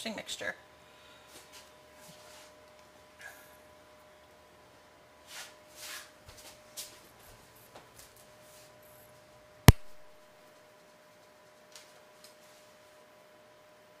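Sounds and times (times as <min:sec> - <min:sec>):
faint electrical whine: 0:00.0 - 0:14.0
soft rustling: 0:01.3 - 0:02.6
sharp loud click: 0:09.7 - 0:10.1.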